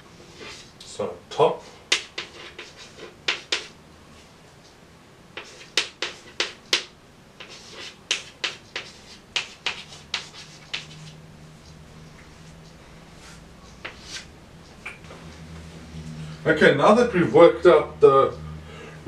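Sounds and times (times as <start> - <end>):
chalk tapping on blackboard: 1.9 - 3.8, 5.4 - 11.2, 13.8 - 14.3.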